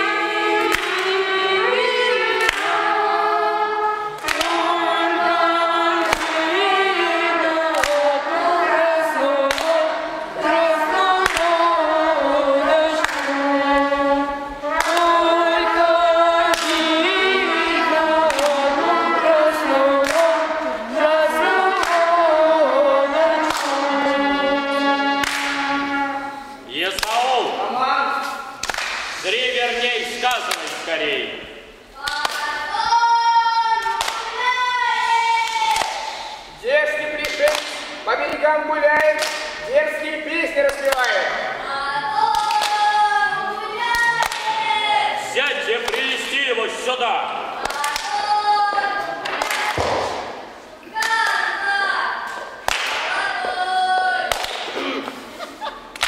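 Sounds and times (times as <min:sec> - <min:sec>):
children singing a cappella folk song: 0:00.0 - 0:56.0
sharp hand claps: 0:00.7 - 0:01.2, 0:02.4 - 0:02.8, 0:04.2 - 0:04.6, 0:06.0 - 0:06.5, 0:07.7 - 0:08.1, 0:09.5 - 0:09.8, 0:11.2 - 0:11.5, 0:13.0 - 0:13.4, 0:14.8 - 0:15.0, 0:16.5 - 0:17.0, 0:18.3 - 0:18.6, 0:20.0 - 0:20.4, 0:23.5 - 0:23.8, 0:25.2 - 0:25.7, 0:26.9 - 0:27.3, 0:28.6 - 0:29.2, 0:30.3 - 0:30.9, 0:32.0 - 0:32.5, 0:33.8 - 0:34.4, 0:35.4 - 0:36.4, 0:37.2 - 0:38.4, 0:39.0 - 0:39.7, 0:40.7 - 0:41.4, 0:42.3 - 0:42.9, 0:43.9 - 0:44.6, 0:47.6 - 0:48.2, 0:49.2 - 0:51.5, 0:52.3 - 0:53.6, 0:54.3 - 0:55.2.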